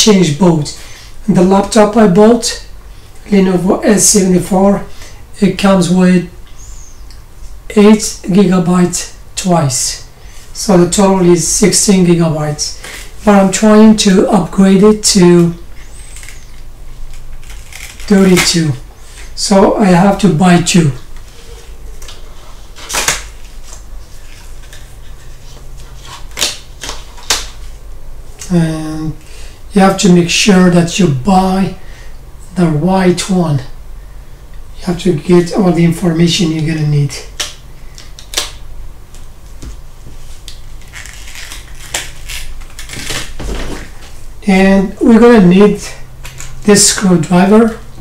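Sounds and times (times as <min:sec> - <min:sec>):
plastic packaging crackle: 0:16.0 - 0:18.5, 0:40.4 - 0:44.1.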